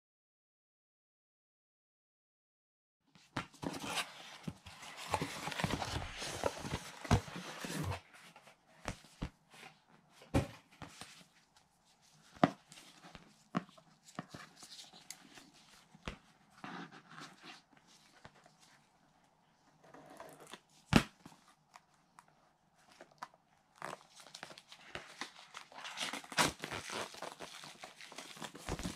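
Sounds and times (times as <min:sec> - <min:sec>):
cardboard box rustling and scraping: 0:03.5 - 0:08.4.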